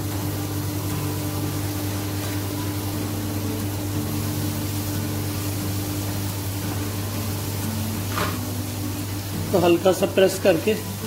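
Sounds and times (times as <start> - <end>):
airy hiss: 0.0 - 11.0
low machine hum: 0.0 - 11.0.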